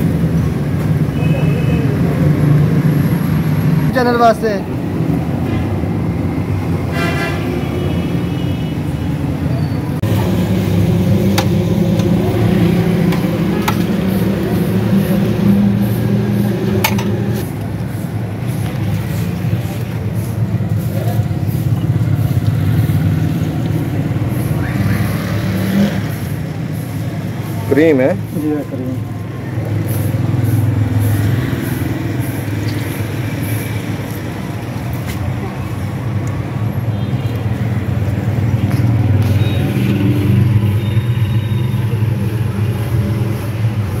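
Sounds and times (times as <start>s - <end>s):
street traffic: 0.0s - 44.0s
vehicle engine humming: 0.0s - 44.0s.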